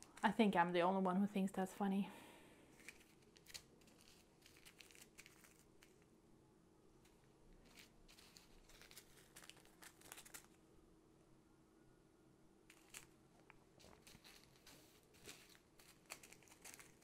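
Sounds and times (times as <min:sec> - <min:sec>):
faint low hum: 0:00.0 - 0:17.0
plastic bags crinkling: 0:02.7 - 0:06.0, 0:07.6 - 0:10.6, 0:12.7 - 0:17.0.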